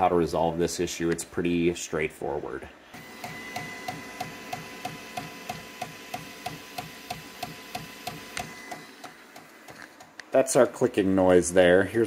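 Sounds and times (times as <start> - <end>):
printer whine: 2.9 - 10.2
printer extruder clicking: 3.0 - 10.3.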